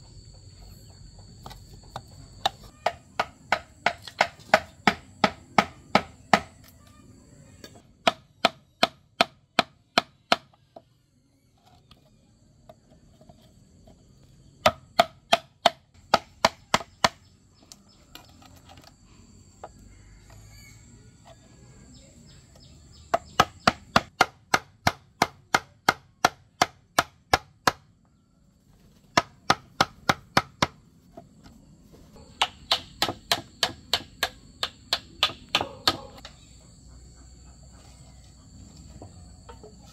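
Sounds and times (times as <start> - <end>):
mallet knocking chisel into bamboo: 1.4 - 6.6, 8.0 - 10.5, 14.6 - 18.3, 32.2 - 36.3.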